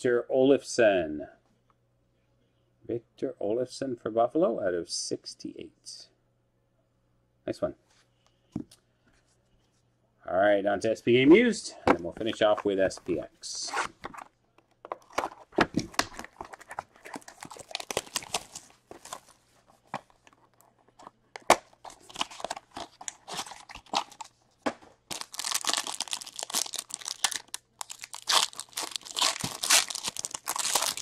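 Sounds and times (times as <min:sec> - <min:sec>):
foil pack crinkling and tearing: 0:16.0 - 0:19.3, 0:21.7 - 0:24.4, 0:25.1 - 0:31.0.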